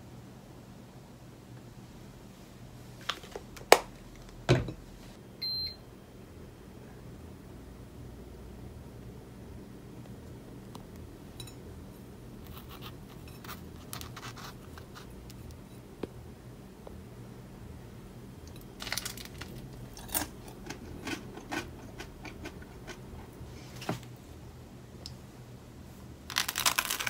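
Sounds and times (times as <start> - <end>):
low steady hum: 0.0 - 27.0
toasted bread crackling: 18.5 - 22.4, 26.3 - 27.0.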